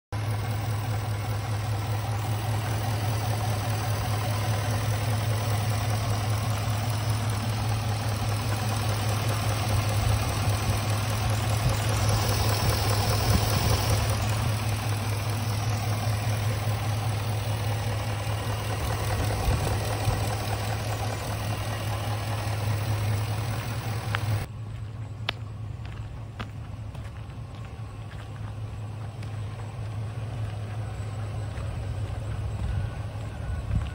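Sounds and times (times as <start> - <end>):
engine idling: 0.1 - 33.9.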